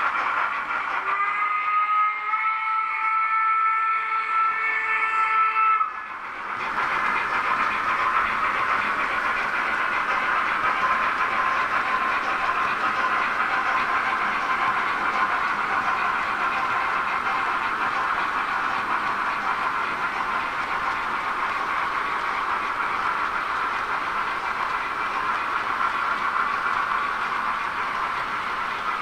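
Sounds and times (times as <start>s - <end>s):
model train wheels rattling on track: 0.0s - 1.3s, 5.8s - 29.0s
model steam whistle chord: 1.0s - 6.0s.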